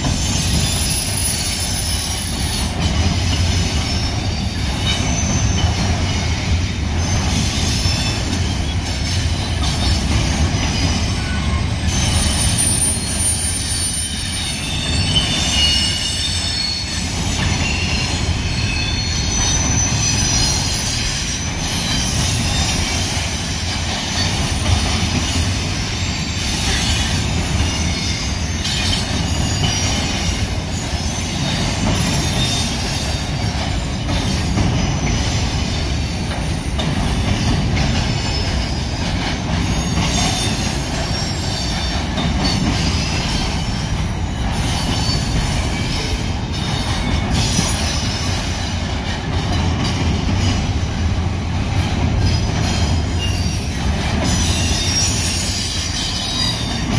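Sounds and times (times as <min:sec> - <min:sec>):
freight train wheels rumbling on rails: 0:00.0 - 0:56.9
high-pitched wheel squeal: 0:03.6 - 0:10.0, 0:10.6 - 0:23.1, 0:52.2 - 0:56.9.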